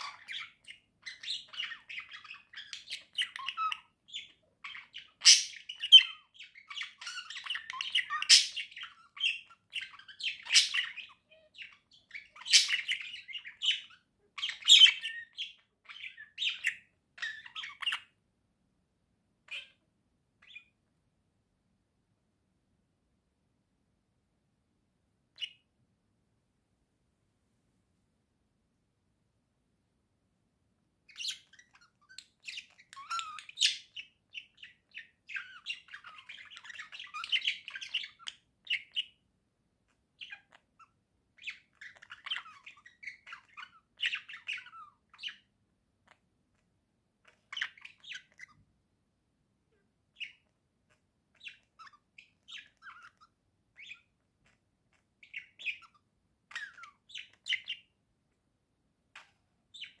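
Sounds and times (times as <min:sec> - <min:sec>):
budgerigar squawk: 0:00.0 - 0:16.8
budgerigars chirping: 0:00.0 - 0:18.2, 0:19.4 - 0:19.8, 0:20.4 - 0:20.8, 0:25.4 - 0:25.7, 0:31.0 - 0:39.2, 0:39.9 - 0:46.2, 0:47.2 - 0:48.6, 0:50.1 - 0:58.0, 0:59.1 - 1:00.0.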